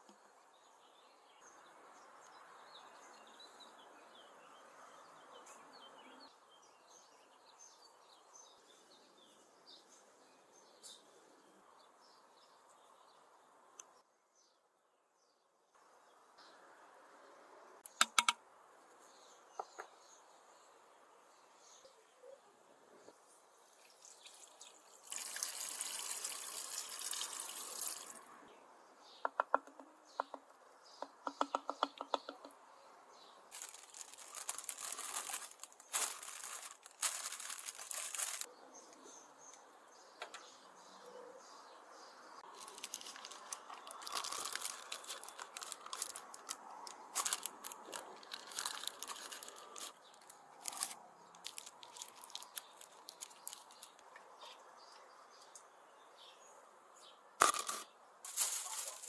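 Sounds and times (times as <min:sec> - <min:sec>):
liquid pouring into a pot: 0:23.8 - 0:28.2
paper crinkling: 0:33.5 - 0:38.5, 0:42.4 - 0:54.0, 0:57.4 - 0:59.0.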